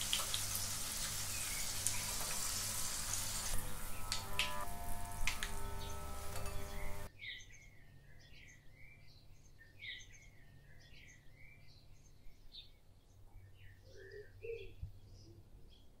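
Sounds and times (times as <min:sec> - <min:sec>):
faint birds chirping: 0:01.1 - 0:02.7, 0:05.1 - 0:16.0
steady low hum: 0:03.4 - 0:07.1.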